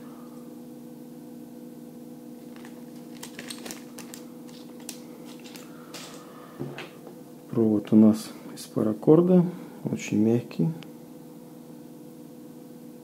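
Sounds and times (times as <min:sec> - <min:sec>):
steady low hum: 0:00.0 - 0:13.0
plastic bags crinkling: 0:02.4 - 0:06.3.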